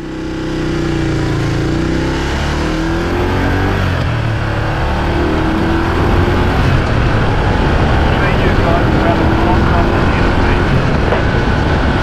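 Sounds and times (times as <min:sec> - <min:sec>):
motorcycle engine accelerating: 0:00.0 - 0:12.0
wind noise rushing: 0:02.8 - 0:12.0.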